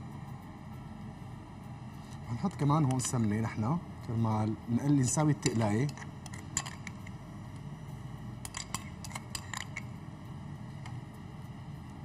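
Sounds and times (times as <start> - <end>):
low steady hum: 0.0 - 12.0
metal spoon clinking on glass bowl: 8.4 - 9.9.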